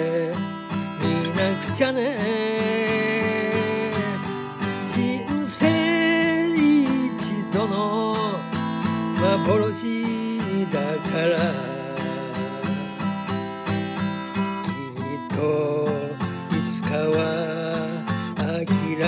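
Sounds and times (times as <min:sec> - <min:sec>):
man singing: 0:00.0 - 0:19.0
strummed acoustic guitar: 0:00.0 - 0:19.0.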